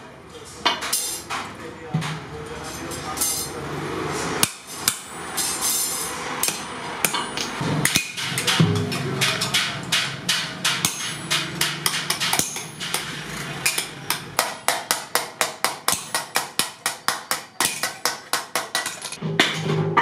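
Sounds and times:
hammer striking sheet iron: 0:04.4 - 0:20.0.

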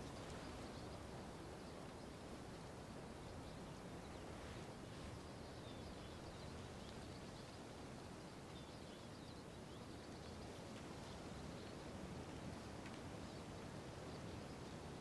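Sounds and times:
low outdoor hiss: 0:00.0 - 0:15.0
faint bird chirps: 0:03.2 - 0:07.6.

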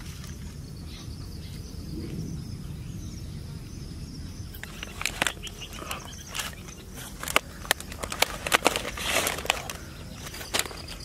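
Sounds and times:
faint steady chirping: 0:00.0 - 0:11.0
foil containers crinkling: 0:04.6 - 0:11.0.

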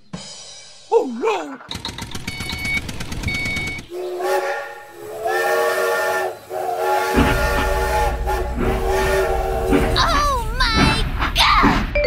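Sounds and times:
low rumble of running train: 0:02.4 - 0:12.0
train whistle blasts: 0:03.9 - 0:10.0.

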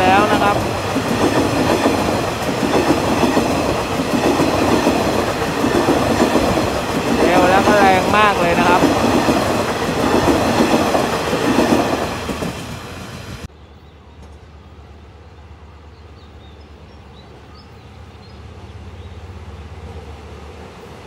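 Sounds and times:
train wheels clattering on rails: 0:00.0 - 0:13.5
faint diesel locomotive drone: 0:00.0 - 0:21.0.

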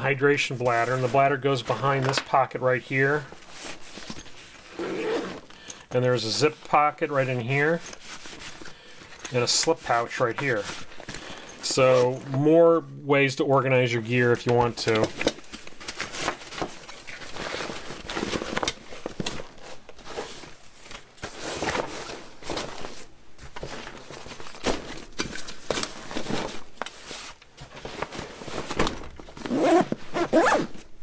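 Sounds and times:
backpack and gear rustling: 0:03.4 - 0:06.4, 0:07.5 - 0:09.6, 0:27.2 - 0:30.8
zipper being pulled: 0:04.7 - 0:05.5, 0:29.4 - 0:30.8.

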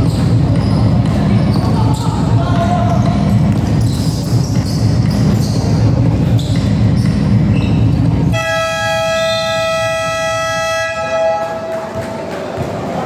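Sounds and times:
loud low din: 0:05.8 - 0:13.0
scoreboard buzzer blaring: 0:08.3 - 0:11.7.

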